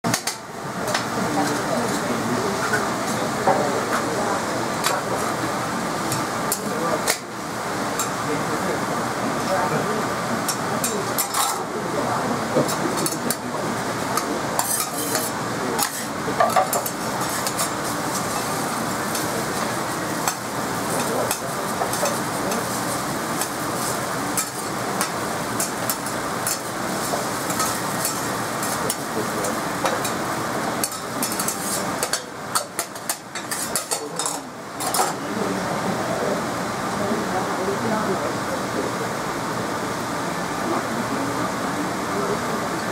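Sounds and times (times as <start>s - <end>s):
food sizzling on a griddle: 12.4s - 35.1s
metal spatulas scraping and clinking: 14.2s - 18.5s, 30.8s - 35.2s.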